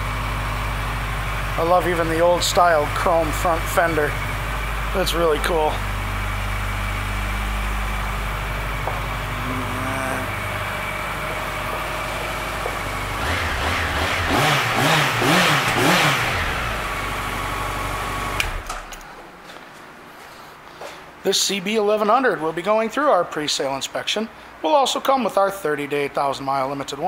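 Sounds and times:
motorcycle engine idling and revving: 0.0 - 18.7.

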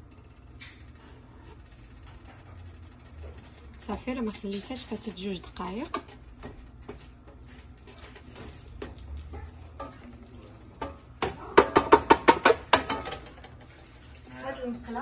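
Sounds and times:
sharp taps against metal pan: 10.8 - 13.2.

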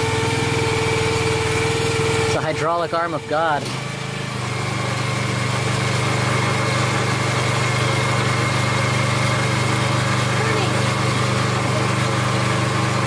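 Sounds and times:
small petrol engine running: 0.0 - 13.0.

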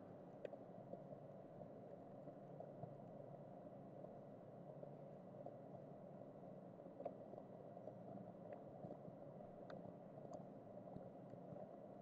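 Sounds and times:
faint ticks: 8.1 - 11.8.

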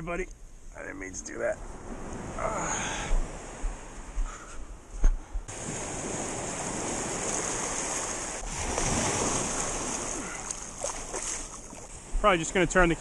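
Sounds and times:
ocean surf washing on beach: 5.5 - 13.0.

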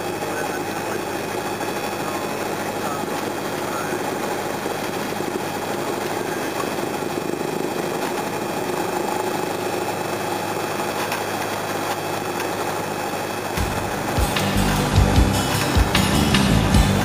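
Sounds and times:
light aircraft engine and propeller: 0.0 - 17.0.

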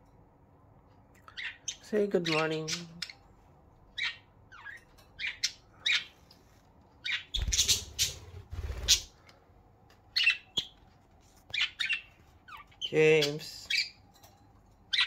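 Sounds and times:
budgerigar chirps and squawks: 1.3 - 3.2, 4.0 - 6.2, 7.0 - 9.1, 10.2 - 10.8, 11.5 - 12.8.

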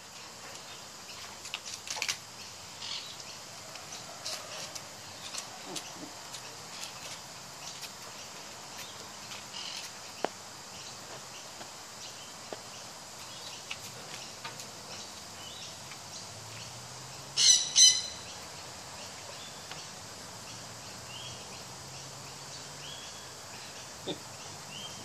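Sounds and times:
parrot chirping: 17.4 - 18.2.

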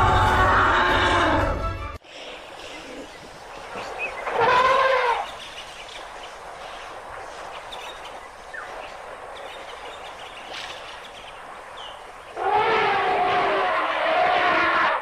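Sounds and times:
faint outdoor hiss: 2.0 - 15.0
elephant trumpeting: 4.2 - 5.3, 12.4 - 15.0.

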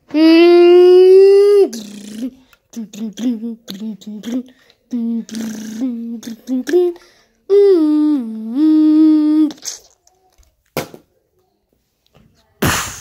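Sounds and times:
boy humming sound effects: 0.1 - 10.0.

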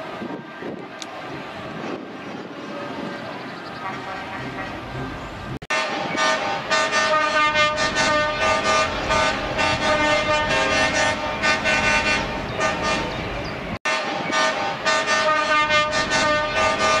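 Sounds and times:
truck horns short blasts: 3.8 - 5.0, 5.7 - 13.1, 13.9 - 17.0.

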